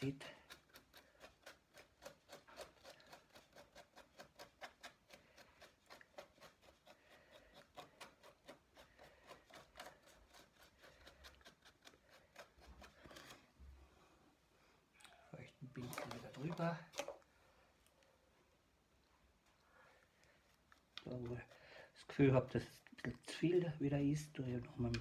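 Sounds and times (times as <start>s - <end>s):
paintbrush scrubbing rough surface: 0.0s - 13.6s, 20.4s - 25.0s.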